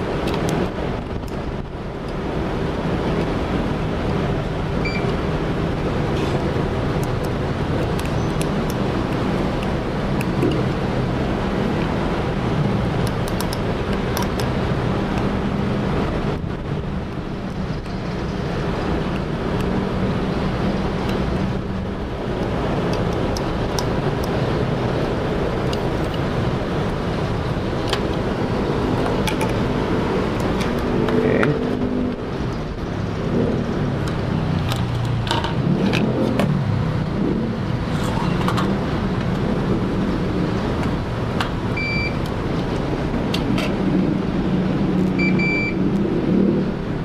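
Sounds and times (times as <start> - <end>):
multimeter continuity beeps: 4.8 - 5.2, 41.7 - 42.3, 45.2 - 45.8.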